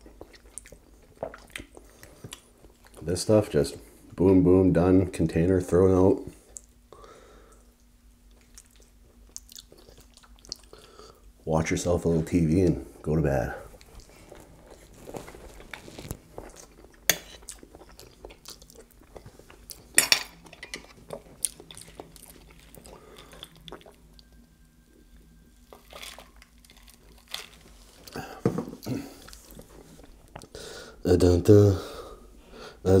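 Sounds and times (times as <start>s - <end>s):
person chewing food: 0.0s - 3.0s, 7.5s - 11.2s, 13.7s - 24.4s, 25.2s - 30.6s.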